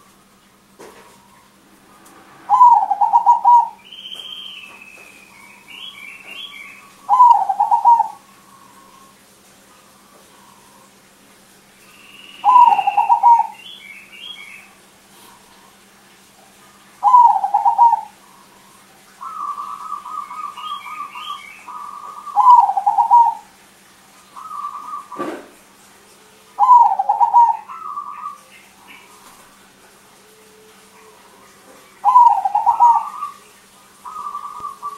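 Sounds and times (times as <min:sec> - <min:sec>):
dove cooing with trills: 0:02.4 - 0:11.0, 0:12.4 - 0:14.4, 0:17.0 - 0:23.6, 0:24.2 - 0:25.6, 0:26.4 - 0:34.9.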